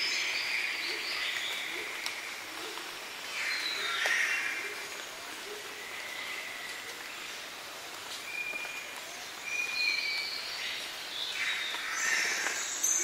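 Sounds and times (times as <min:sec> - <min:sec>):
steady background hiss: 0:00.0 - 0:13.0
birds calling: 0:08.4 - 0:13.0.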